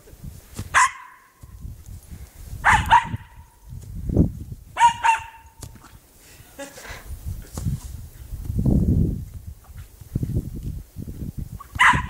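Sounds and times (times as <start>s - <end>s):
dog barking: 0.8s - 1.3s, 2.6s - 3.5s, 4.8s - 5.5s, 11.8s - 12.0s.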